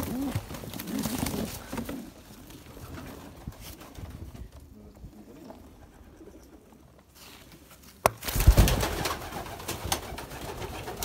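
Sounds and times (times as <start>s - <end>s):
pigeons cooing: 0.0s - 3.3s.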